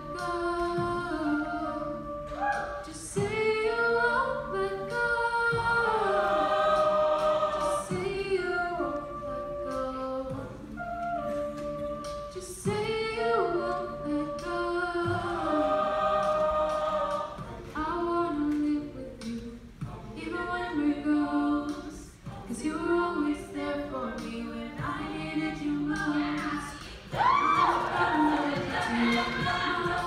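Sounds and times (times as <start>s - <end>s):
a cappella group singing: 0.0s - 30.0s
vocal percussion beat: 0.0s - 30.0s.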